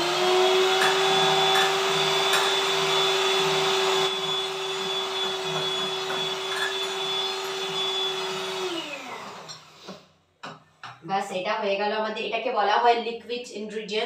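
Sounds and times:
electric hand mixer whining: 0.0s - 10.1s.

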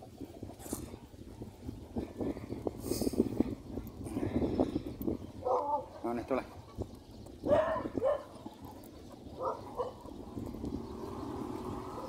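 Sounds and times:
dog barking: 5.4s - 5.9s, 7.5s - 8.3s, 9.4s - 10.0s.

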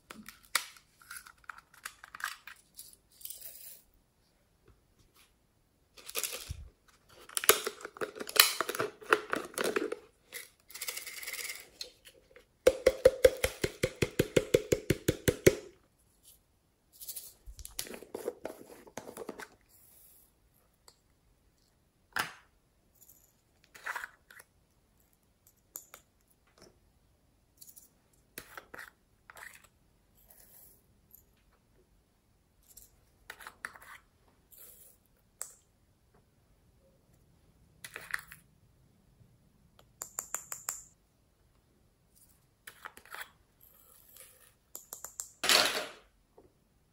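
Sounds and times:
plastic lids clicking and rattling: 7.2s - 10.0s.

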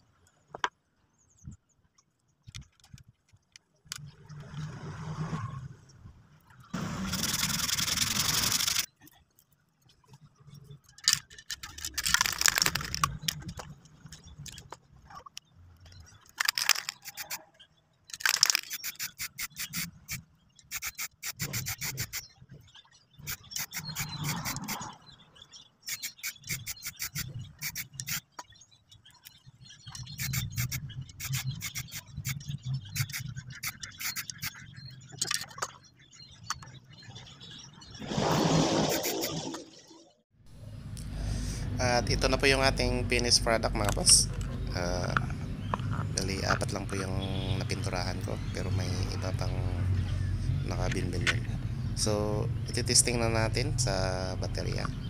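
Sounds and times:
sandpaper rubbing on plastic: 6.8s - 8.9s, 18.6s - 22.2s, 23.2s - 24.9s, 25.9s - 28.2s, 30.1s - 34.6s
spray paint can hissing: 6.8s - 8.9s, 18.7s - 22.2s, 23.2s - 24.8s, 25.9s - 28.2s, 30.2s - 34.6s.

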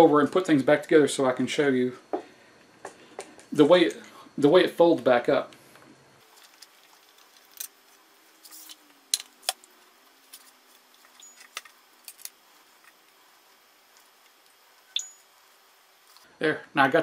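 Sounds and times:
tripod parts clicking and clinking: 11.0s - 13.0s.

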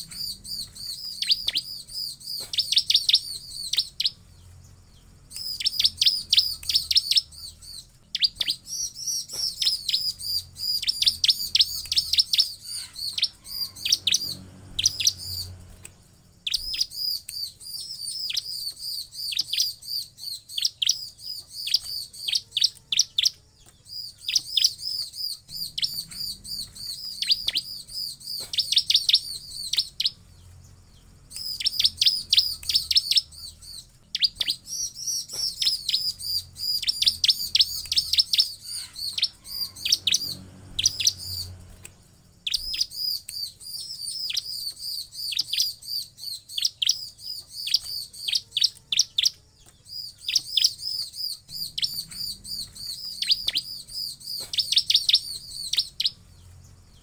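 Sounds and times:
bird chirping fast high chirps: 0.0s - 57.0s.

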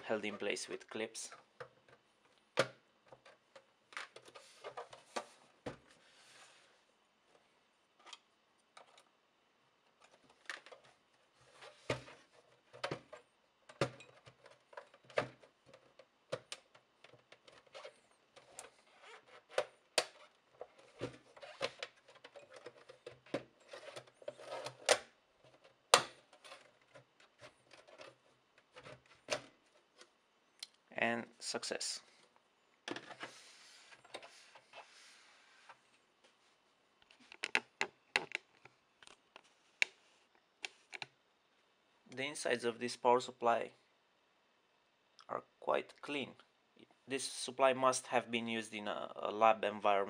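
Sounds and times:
plastic clips clicking and knocking: 37.3s - 39.2s.

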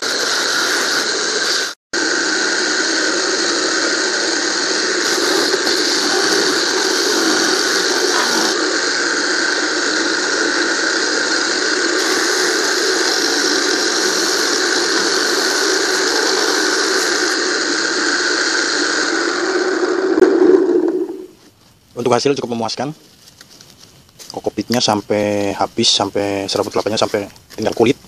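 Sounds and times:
electric motor shredding husk: 0.0s - 18.9s.

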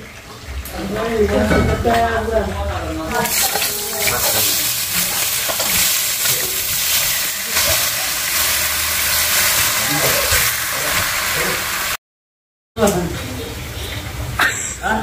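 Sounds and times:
chicken sizzling in a wok: 3.1s - 12.0s.

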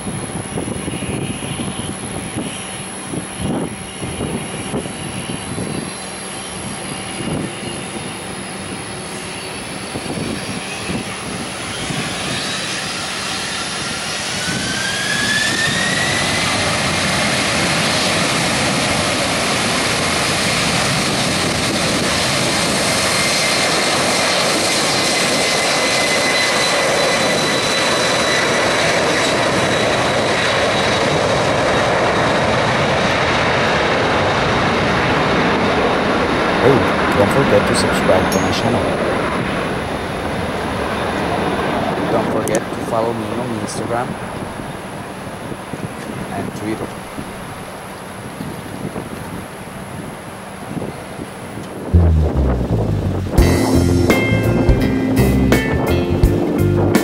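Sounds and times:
jet engines spooling up: 0.0s - 48.4s, 49.0s - 55.7s.

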